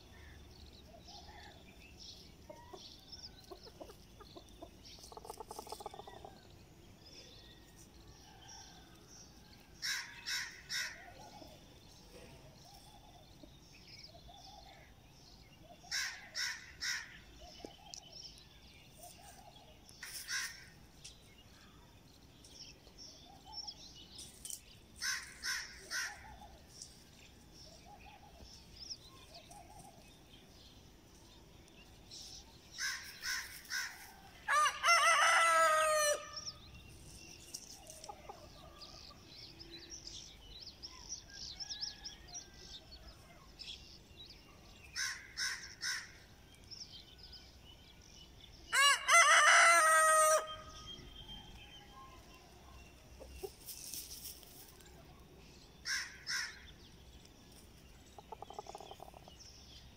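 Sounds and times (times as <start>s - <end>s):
rooster crowing: 34.4s - 36.4s, 48.7s - 50.8s.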